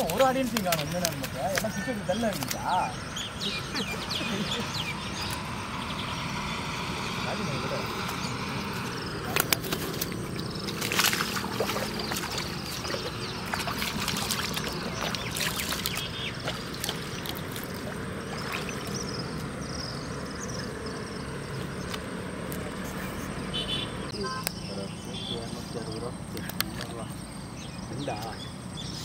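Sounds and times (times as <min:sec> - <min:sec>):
water splashing and sloshing: 0:00.0 - 0:05.8, 0:07.8 - 0:19.7.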